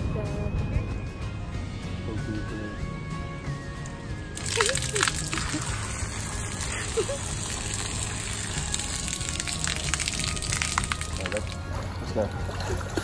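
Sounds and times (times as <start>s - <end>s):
water gushing and splashing: 4.4s - 13.0s.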